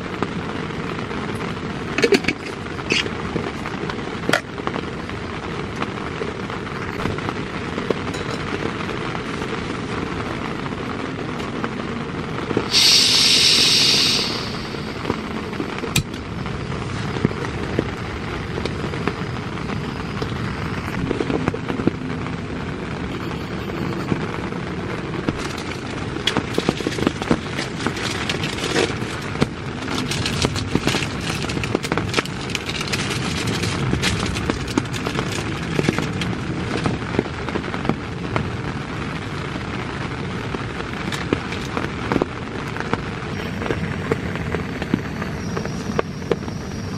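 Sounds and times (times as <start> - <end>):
rain pattering on tent fabric: 0.0 - 46.9
stove lighting hiss: 12.5 - 21.3, 25.2 - 37.1, 41.0 - 46.9
gas stove burning: 12.5 - 21.9, 25.2 - 38.1.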